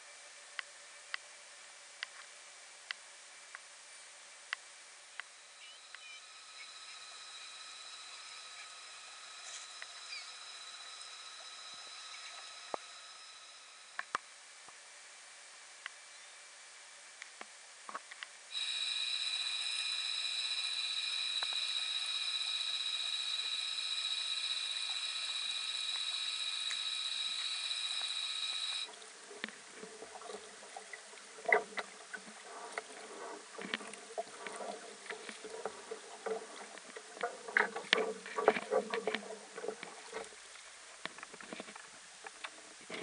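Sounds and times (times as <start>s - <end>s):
high-pitched tonal whine: 5.2s - 14.6s, 18.5s - 29.2s.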